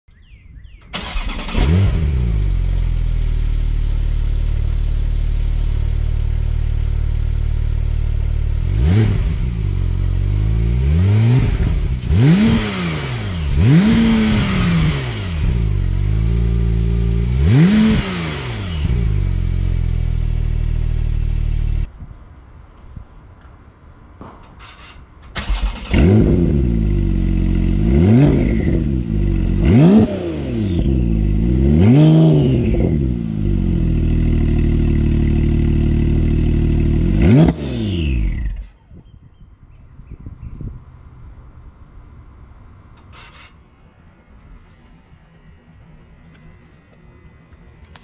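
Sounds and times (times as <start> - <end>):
car engine starting and idling: 0.8 - 21.9, 25.2 - 32.0, 32.6 - 38.7
car engine revving: 1.0 - 21.9, 25.4 - 38.6.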